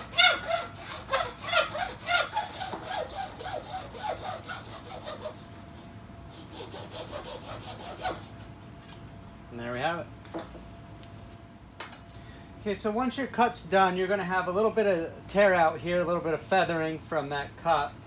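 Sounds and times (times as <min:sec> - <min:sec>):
hacksaw cutting plastic pipe: 0:00.0 - 0:05.4, 0:06.4 - 0:08.3.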